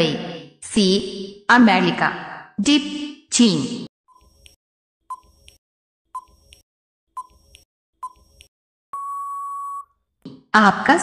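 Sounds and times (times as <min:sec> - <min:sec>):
long steady beep: 0:08.9 - 0:09.9.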